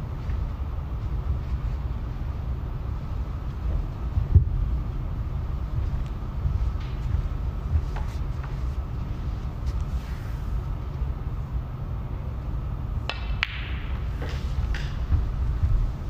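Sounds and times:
low rumble of room noise: 0.0s - 16.0s
cue striking ball: 13.0s - 15.1s
snooker balls knocking together: 13.1s - 15.2s.

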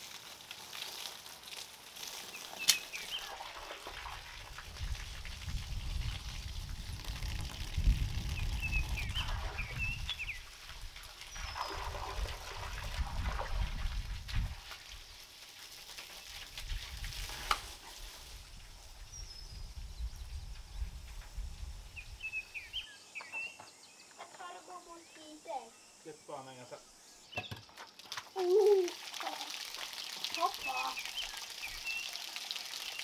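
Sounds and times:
water splashing from pipe: 0.0s - 18.9s, 27.7s - 33.0s
small bird chirping: 21.9s - 27.7s, 30.4s - 32.2s.

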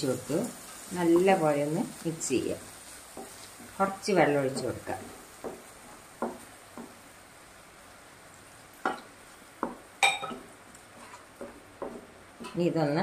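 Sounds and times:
soft sizzle of frying: 0.0s - 13.0s
spatula scraping frying pan: 2.7s - 7.0s, 9.6s - 12.6s
spatula knocking against pan: 5.4s - 7.0s, 8.8s - 10.5s, 11.1s - 12.6s.

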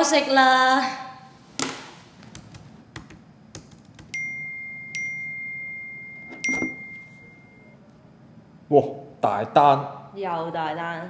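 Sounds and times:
phone notification chime: 4.2s - 7.7s.

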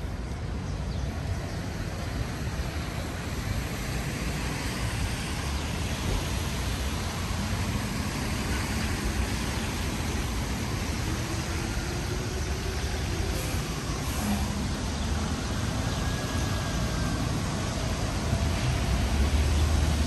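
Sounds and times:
traffic on wet streets: 0.0s - 20.0s
rain hissing: 1.1s - 20.0s.

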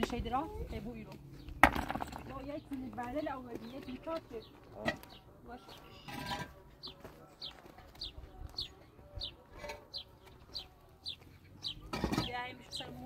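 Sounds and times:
small bird chirping: 6.8s - 11.9s.

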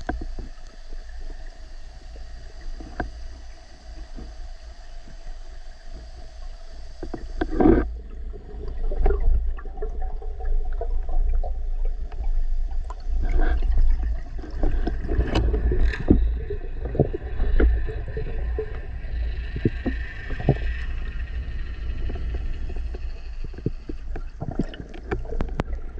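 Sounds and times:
clicks and knocks from diving gear: 0.0s - 0.8s, 14.4s - 16.3s, 22.1s - 25.8s
underwater rumble of moving water: 0.0s - 25.9s.

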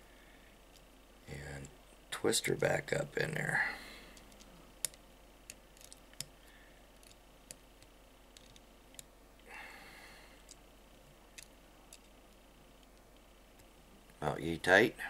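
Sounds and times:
small tool clicking on metal: 7.0s - 9.1s.

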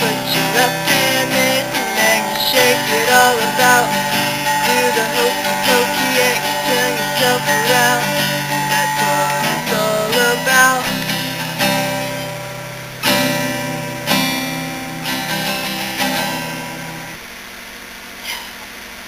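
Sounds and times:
person humming wordless melody: 0.0s - 11.2s
acoustic guitar strumming: 0.0s - 17.3s.

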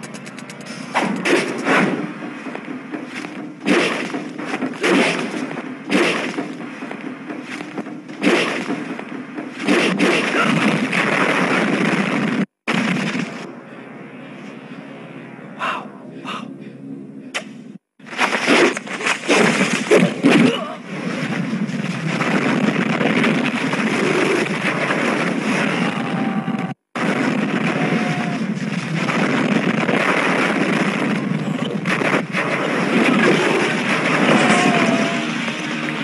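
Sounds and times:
dense continuous noise: 0.0s - 36.0s
punch impacts: 3.6s - 6.6s, 7.5s - 11.0s
voices: 32.6s - 36.0s.

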